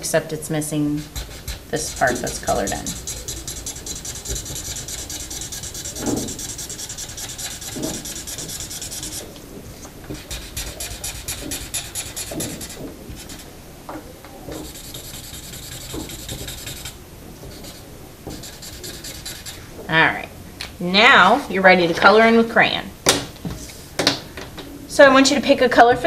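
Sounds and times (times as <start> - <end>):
marker scribbling on paper: 0.8 - 9.3, 10.1 - 13.5, 14.6 - 19.6.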